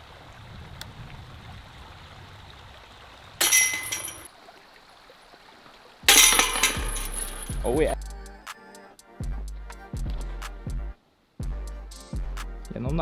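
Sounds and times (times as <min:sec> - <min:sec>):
metal chains jingling: 0:03.4 - 0:04.3, 0:06.1 - 0:07.8.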